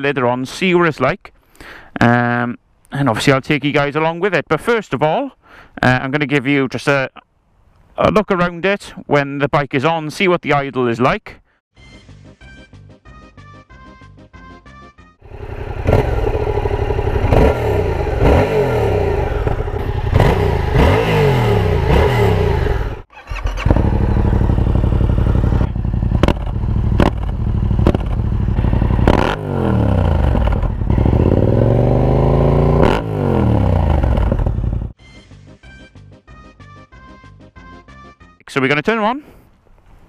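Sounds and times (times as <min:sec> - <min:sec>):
motorcycle engine accelerating: 0:15.2 - 0:35.0.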